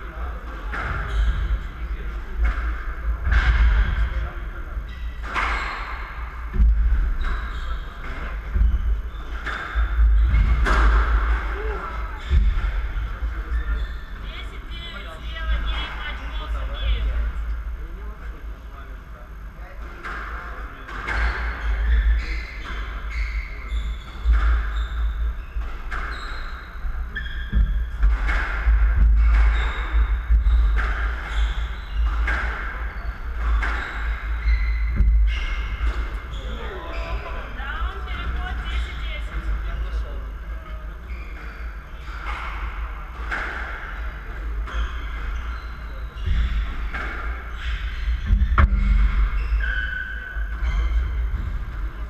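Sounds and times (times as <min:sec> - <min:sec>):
steady low hum: 0:00.0 - 0:52.0
shoes squeaking on wooden floor: 0:21.1 - 0:52.0.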